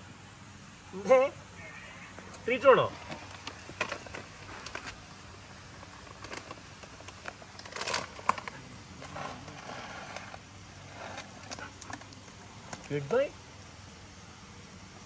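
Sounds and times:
plastic bag rustling and crinkling: 3.0 - 12.9.

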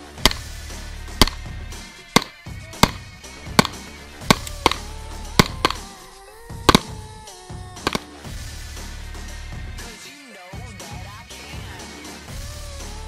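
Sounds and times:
pistol shots: 0.2 - 0.5, 1.2 - 1.5, 2.2 - 6.1, 6.7 - 7.0, 7.9 - 8.1.

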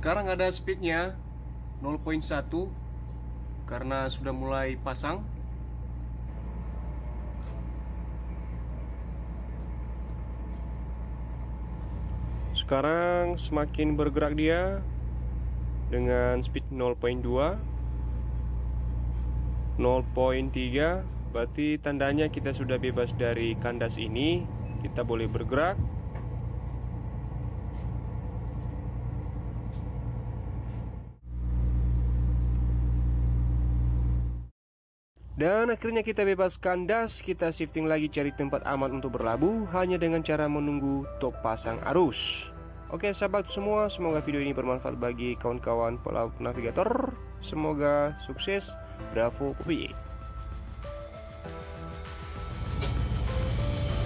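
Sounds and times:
faint high hum: 0.0 - 34.5
ship machinery drone: 0.0 - 34.5, 38.7 - 54.0.

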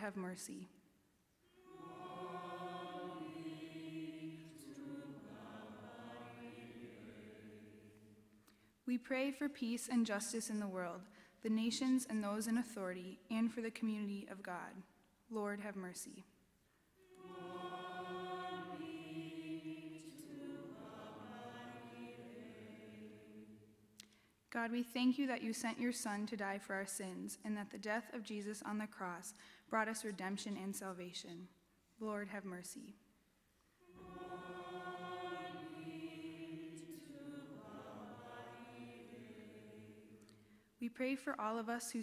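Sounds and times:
congregation singing: 1.5 - 8.4, 17.0 - 23.9, 33.8 - 40.6.

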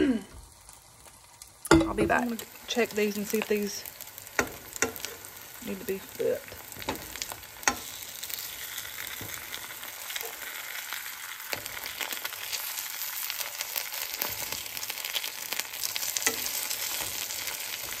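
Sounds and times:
meat sizzling in frying pan: 0.0 - 18.0
metal fork scraping a pan: 6.8 - 9.5, 16.0 - 18.0.

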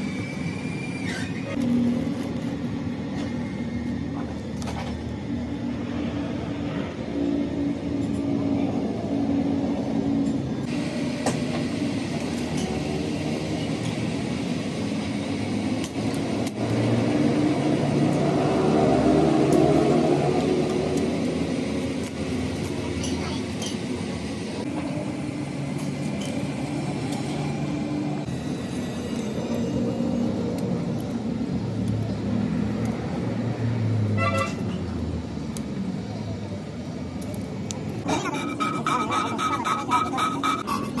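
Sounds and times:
vehicle engine rumbling: 0.0 - 41.0
car horn toot: 34.2 - 34.6.

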